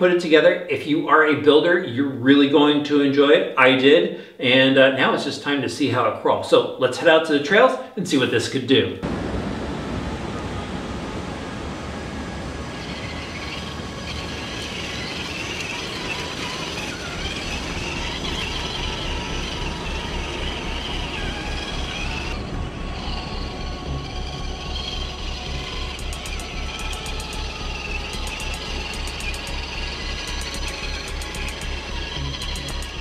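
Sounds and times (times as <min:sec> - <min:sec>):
electric motor whining: 0:09.0 - 0:33.0.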